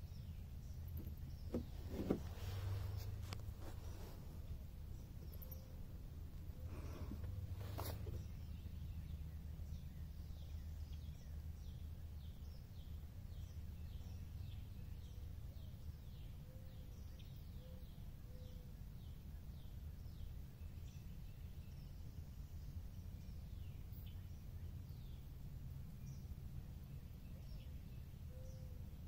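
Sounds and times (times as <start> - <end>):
steady low rumble: 0.0 - 17.4.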